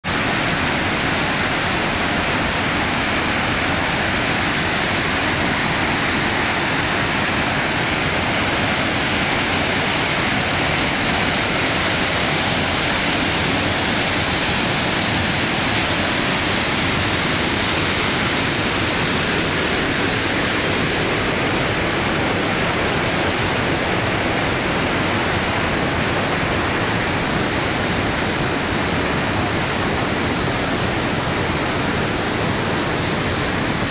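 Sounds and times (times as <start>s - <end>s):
river water rushing through gorge: 0.1s - 33.9s.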